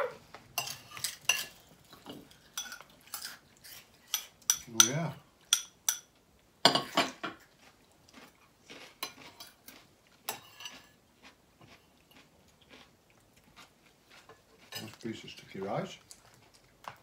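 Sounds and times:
cutlery and dishes clinking: 0.6s - 7.5s, 10.3s - 11.0s, 14.2s - 15.4s.

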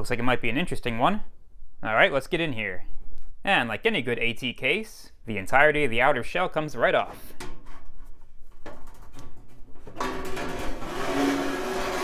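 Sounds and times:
metal cover scraping: 7.2s - 12.0s.

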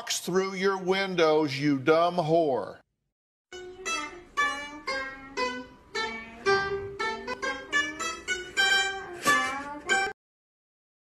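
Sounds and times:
plucked lute melody: 3.5s - 10.2s.

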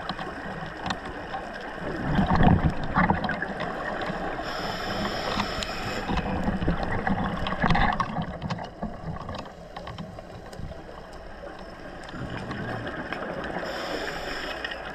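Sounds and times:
diver's bubbles gurgling underwater: 0.0s - 9.5s, 12.1s - 13.6s
faint clicks: 0.0s - 14.9s
steady underwater hiss: 0.0s - 14.9s.

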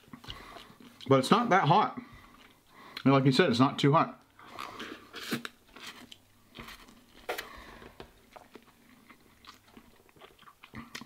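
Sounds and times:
person chewing and slurping noodles: 0.0s - 1.1s, 4.4s - 11.0s.

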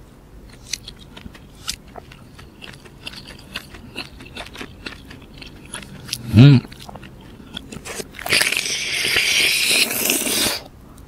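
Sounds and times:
person chewing: 0.4s - 10.7s.

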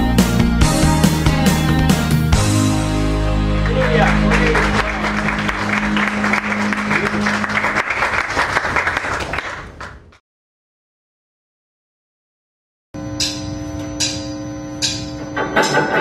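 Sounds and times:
audience applause: 3.4s - 10.1s.

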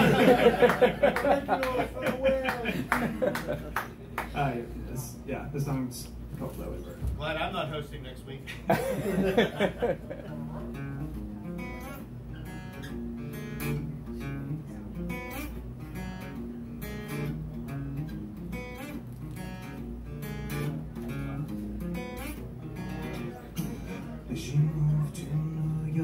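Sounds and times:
acoustic guitar strumming: 0.0s - 4.1s, 10.0s - 26.0s.

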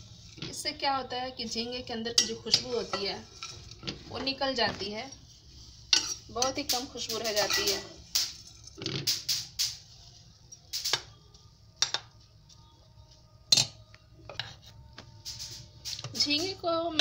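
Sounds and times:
spoon clinking against steel pot: 2.1s - 3.5s.

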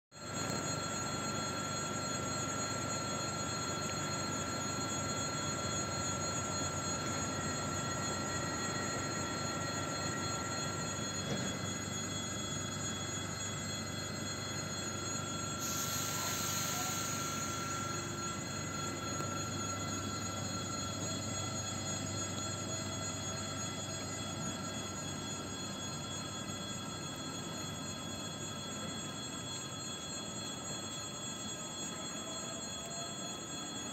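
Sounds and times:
electric train whine: 0.1s - 33.9s
train moving off: 15.5s - 21.6s
air hiss: 15.6s - 18.6s.

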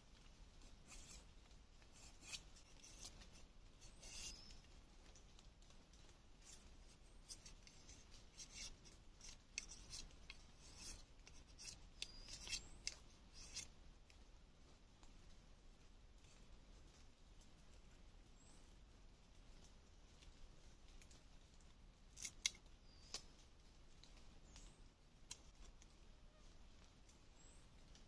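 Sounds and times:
knife scraping bamboo stick: 0.6s - 1.2s, 1.9s - 4.6s, 6.4s - 13.7s.

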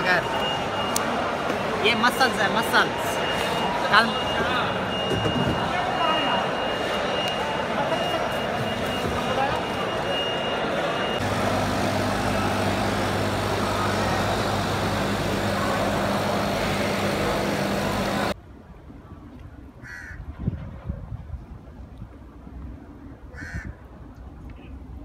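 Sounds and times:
busy fish market din: 0.0s - 18.4s
constant low hum: 11.2s - 19.8s
crow cawing: 19.8s - 20.2s, 23.4s - 23.7s.

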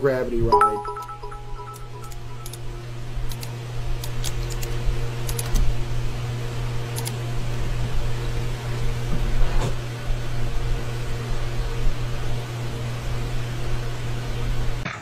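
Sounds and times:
steady low hum: 0.0s - 14.8s
keyboard and mouse clicks: 3.3s - 5.6s.

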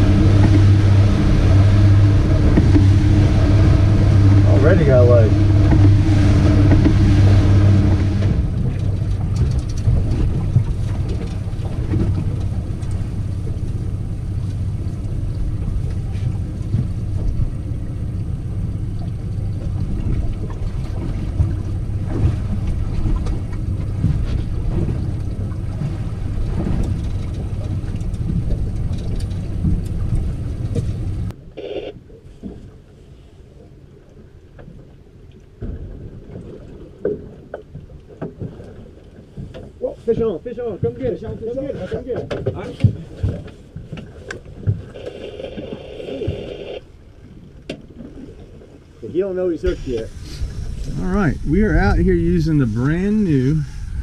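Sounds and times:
wind noise: 0.0s - 31.3s, 49.6s - 54.0s
outboard motor running: 0.0s - 32.0s, 37.5s - 48.8s, 49.6s - 54.0s
water rushing past boat: 0.0s - 54.0s.

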